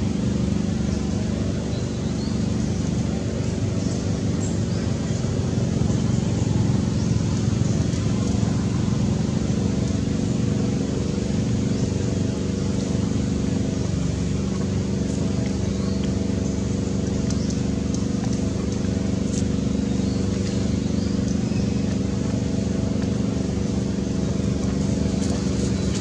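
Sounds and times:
engine idling hum: 0:00.0 - 0:26.0
faint high ticks: 0:17.0 - 0:19.5.

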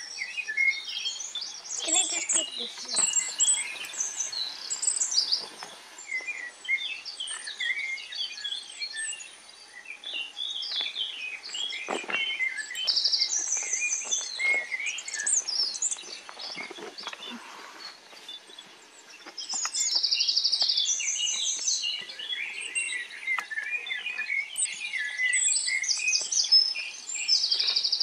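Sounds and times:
songbirds chirping and singing: 0:00.0 - 0:28.0
buzzy bird trill: 0:00.8 - 0:05.4.

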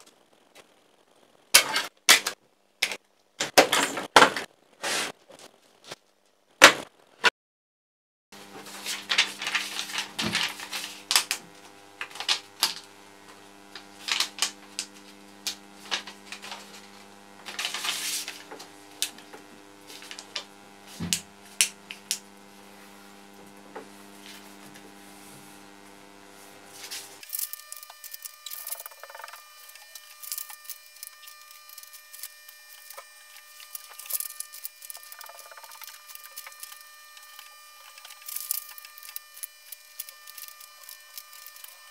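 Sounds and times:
paper folding and rustling: 0:08.4 - 0:12.9, 0:13.8 - 0:21.3
steady low hum: 0:08.4 - 0:41.9.

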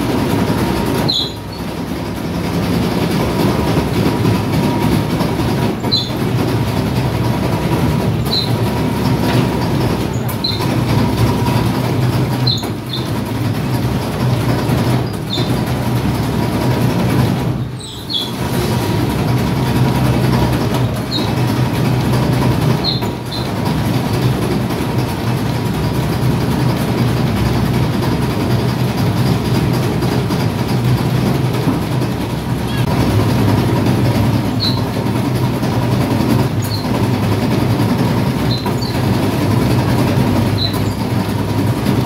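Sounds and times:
dough roller motor running: 0:00.0 - 0:42.0
short high squeak: 0:01.0 - 0:01.6, 0:05.8 - 0:06.2, 0:08.2 - 0:08.6, 0:10.1 - 0:10.7, 0:12.4 - 0:13.1, 0:15.3 - 0:15.6, 0:17.8 - 0:18.4, 0:22.8 - 0:23.5, 0:34.5 - 0:35.0, 0:36.6 - 0:36.9, 0:38.4 - 0:39.0, 0:40.5 - 0:41.0.

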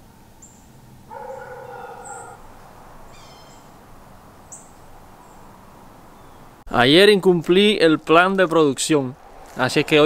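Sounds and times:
high bird chirps: 0:00.4 - 0:02.4, 0:03.1 - 0:03.8
drawn-out bird call: 0:00.4 - 0:06.6.

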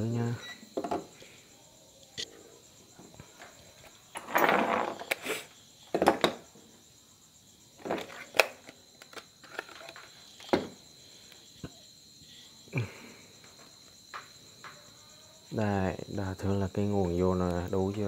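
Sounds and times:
multimeter handling knocks and clicks: 0:08.0 - 0:10.7.

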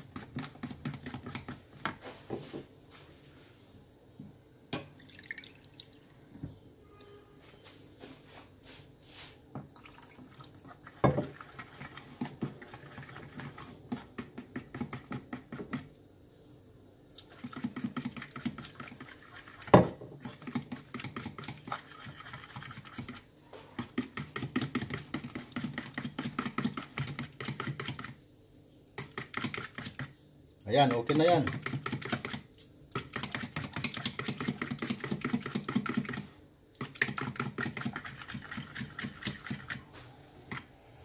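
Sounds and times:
spoon whisking batter in bowl: 0:00.0 - 0:02.2, 0:10.2 - 0:15.9, 0:17.2 - 0:28.2, 0:29.0 - 0:30.1, 0:30.7 - 0:39.8.

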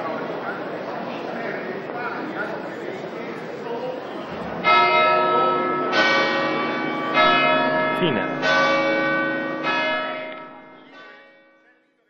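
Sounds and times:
church bell tolling: 0:04.6 - 0:11.7.

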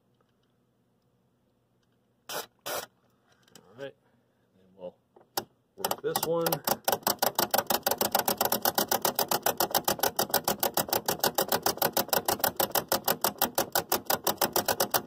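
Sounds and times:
rotary switch clicking rapidly: 0:05.4 - 0:15.0.

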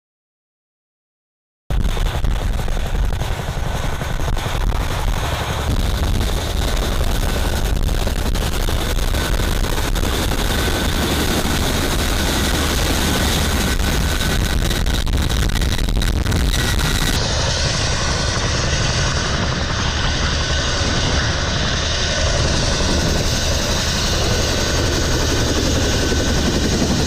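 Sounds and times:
fast helicopter rotor thump: 0:01.7 - 0:27.0
high turbine whine: 0:01.7 - 0:27.0.

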